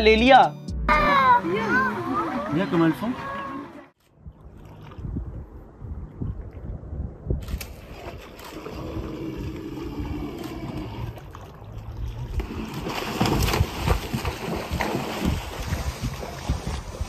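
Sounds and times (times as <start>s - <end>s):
wind on microphone: 4.2s - 11.3s, 11.9s - 17.0s
moose splashing through water: 7.4s - 17.0s.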